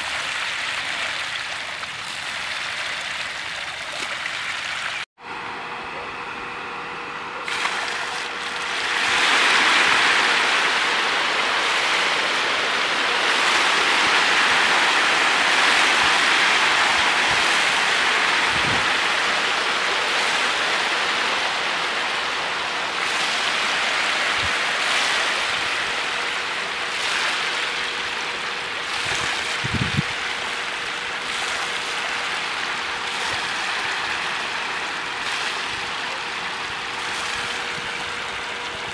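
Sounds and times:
fish splashing at water surface: 7.5 - 10.8.

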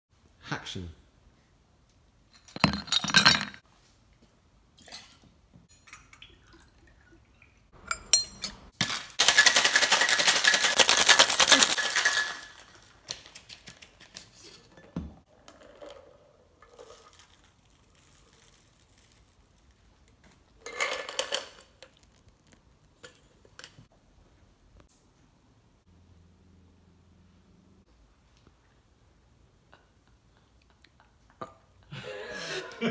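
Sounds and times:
ice cubes clinking into glass: 2.5 - 3.6, 7.9 - 12.7
ice rattling in cocktail shaker: 8.8 - 13.1, 15.6 - 19.7.

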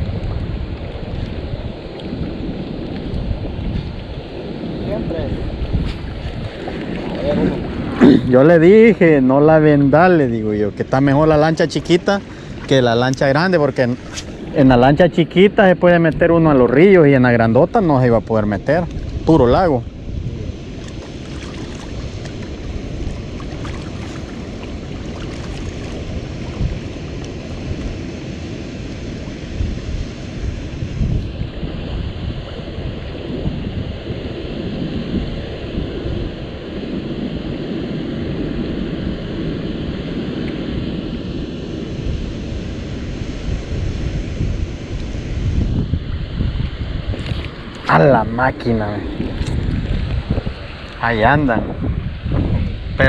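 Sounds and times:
wind buffeting microphone: 0.0 - 53.0
river water rushing: 0.9 - 8.7, 9.3 - 15.1, 18.4 - 34.5, 39.8 - 51.3.

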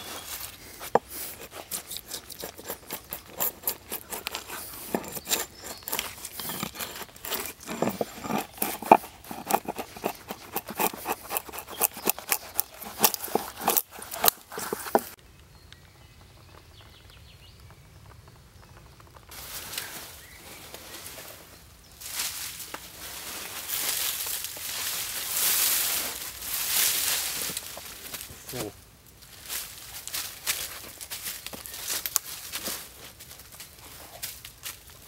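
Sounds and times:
faint outdoor background: 0.0 - 35.0
wood cracking and splintering: 0.8 - 15.2.

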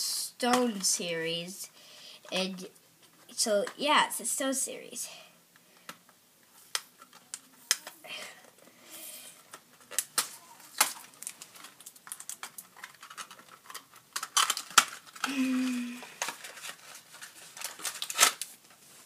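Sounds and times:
plastic wrapper crinkling: 9.4 - 19.0.

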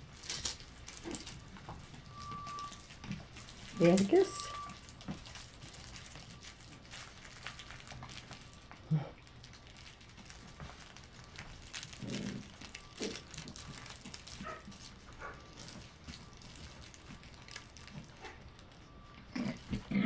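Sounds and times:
puppies scuffling on a mat: 9.4 - 18.6.

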